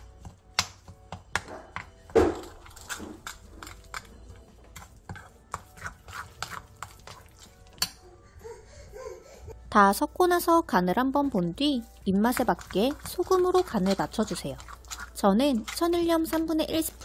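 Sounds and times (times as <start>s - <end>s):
metal spoon scraping ceramic bowl: 2.6s - 7.8s, 12.3s - 17.0s.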